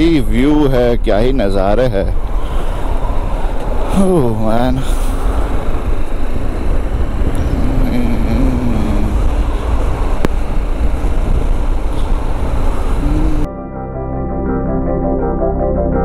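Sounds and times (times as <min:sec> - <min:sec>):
wind rumble on microphone: 0:00.0 - 0:13.5
organ music: 0:13.5 - 0:16.0.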